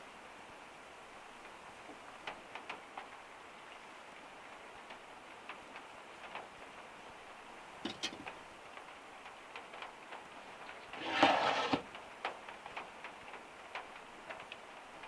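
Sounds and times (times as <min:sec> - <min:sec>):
faint ticks: 0:04.8 - 0:06.9, 0:11.9 - 0:15.0.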